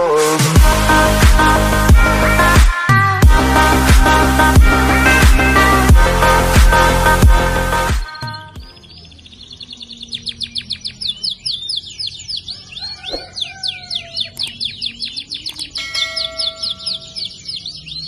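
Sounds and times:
canary chirping: 8.1 - 18.0.

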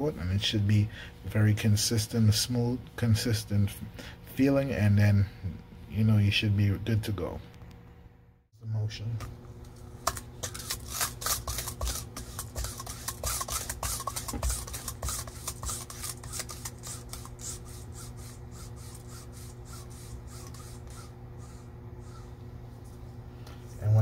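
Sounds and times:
steady low hum: 0.0 - 24.0
syringe plungers rasping: 10.4 - 22.4.

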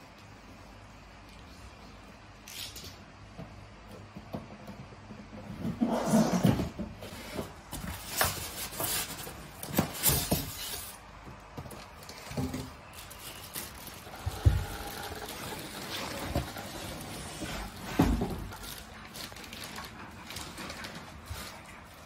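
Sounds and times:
cardboard box scrapes and knocks: 5.6 - 11.0
plastic wrapping rustling: 7.4 - 22.0.

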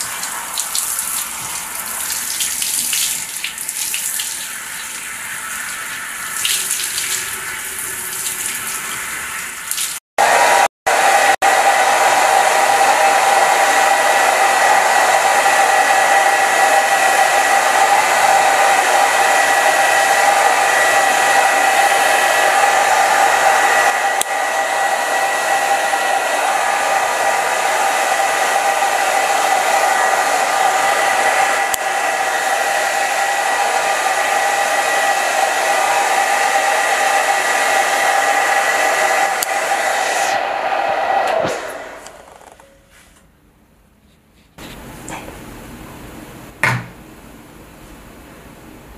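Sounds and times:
shower spraying water on hair: 0.0 - 10.0
hair dryer blowing: 0.0 - 42.8.

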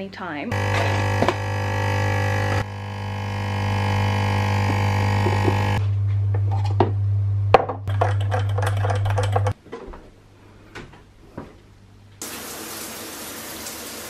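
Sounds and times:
shower water running: 12.2 - 14.0.

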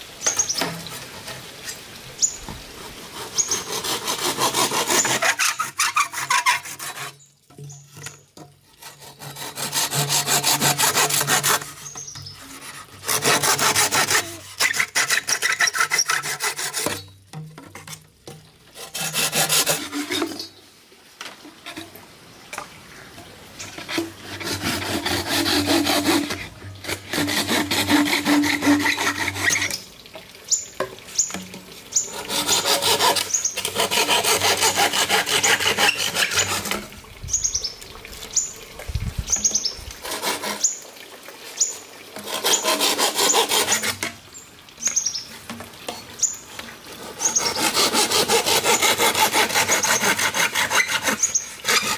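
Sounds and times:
hand saw cutting bamboo: 2.8 - 7.2, 8.0 - 18.0, 18.7 - 20.5, 23.6 - 29.8, 32.0 - 36.9, 40.0 - 40.8, 42.2 - 44.2, 47.0 - 51.9.

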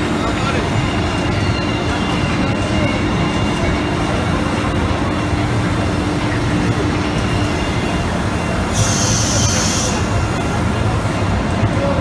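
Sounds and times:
air hiss: 8.7 - 10.2.

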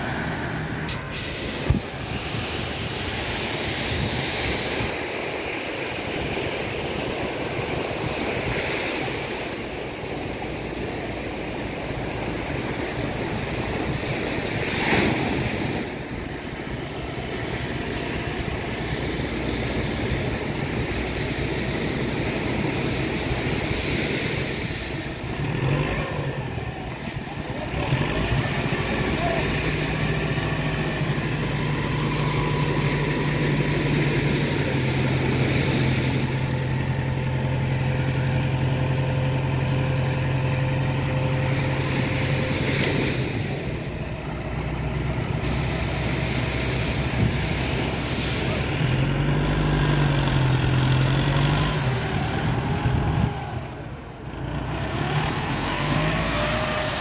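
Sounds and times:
wind on microphone: 0.0 - 37.2, 52.1 - 53.7
engine running: 0.0 - 57.0
surf washing on beach: 0.0 - 57.0
brief loud rush: 0.1 - 5.0.

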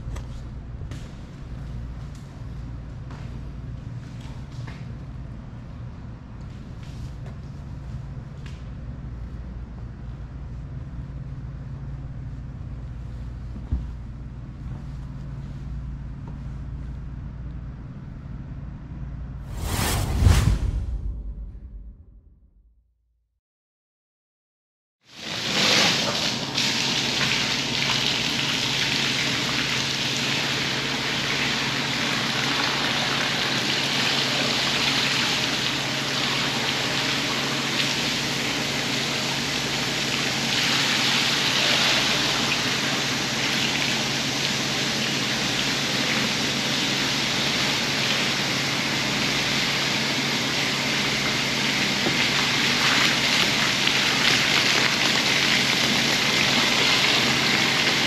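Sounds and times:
low machine hum: 0.0 - 22.7, 26.6 - 58.0
water spraying onto rug: 39.6 - 46.9, 52.2 - 58.0.

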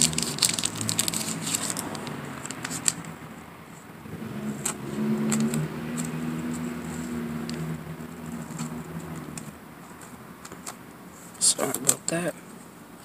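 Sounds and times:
steady low hum: 0.0 - 11.6
trading cards clicking and tapping: 4.6 - 7.7, 8.3 - 10.8.

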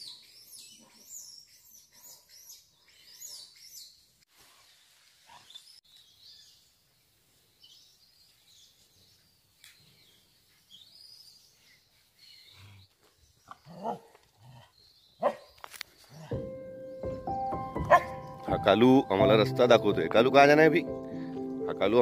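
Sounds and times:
faint birdsong: 0.0 - 4.1, 4.7 - 19.2
dog barking: 15.2 - 15.5, 17.8 - 18.2.

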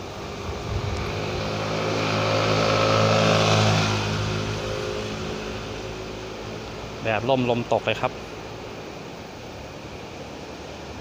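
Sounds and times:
vehicle engine passing by: 0.0 - 7.6.

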